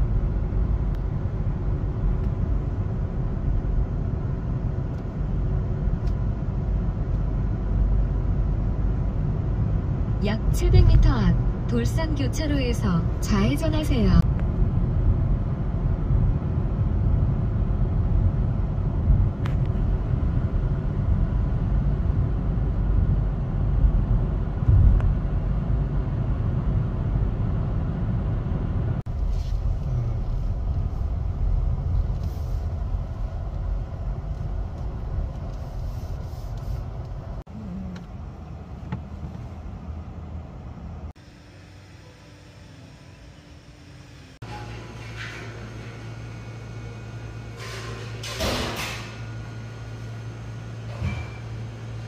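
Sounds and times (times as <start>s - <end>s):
car cabin road and engine rumble: 0.0s - 41.2s.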